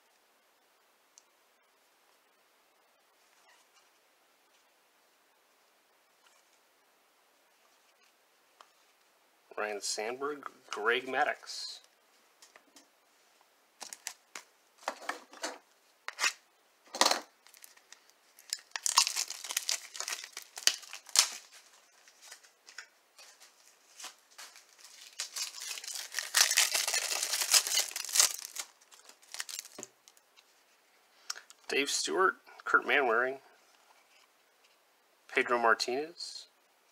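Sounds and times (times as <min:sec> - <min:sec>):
plastic wrapper crinkling and tearing: 0:13.8 - 0:14.5, 0:17.4 - 0:30.2.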